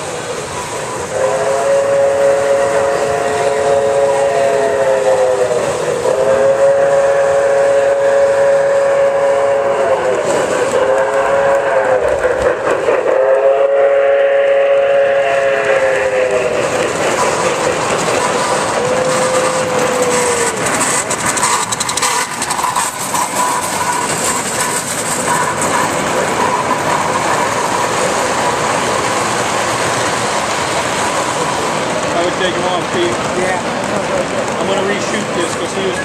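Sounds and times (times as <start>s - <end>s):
model train whistle chord: 1.0s - 12.1s, 13.1s - 16.5s
model train wheels clattering: 10.2s - 13.5s, 15.4s - 36.0s.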